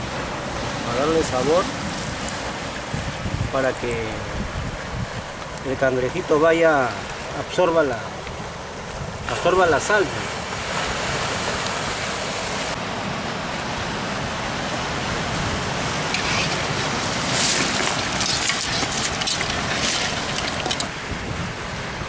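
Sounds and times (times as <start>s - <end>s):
wind on microphone: 0.0s - 5.8s, 8.3s - 9.5s, 15.0s - 22.0s
surf on a stony beach: 0.0s - 22.0s.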